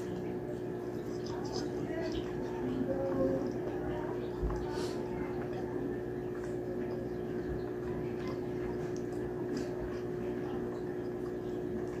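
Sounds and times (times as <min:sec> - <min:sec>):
wet chewing and lip-smacking: 0:00.0 - 0:05.6
steady background hum: 0:00.0 - 0:12.0.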